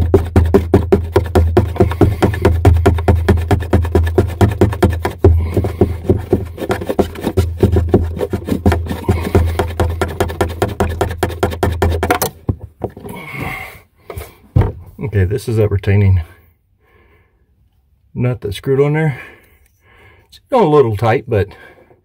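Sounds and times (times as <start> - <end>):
plastic nut scraping rattle: 0.0 - 13.2.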